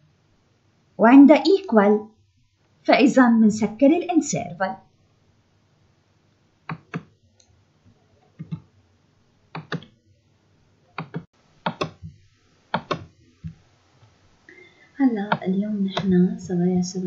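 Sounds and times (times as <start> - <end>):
sharp clicks: 6.7 - 7.5, 9.6 - 9.9, 11.0 - 12.0, 12.8 - 13.1.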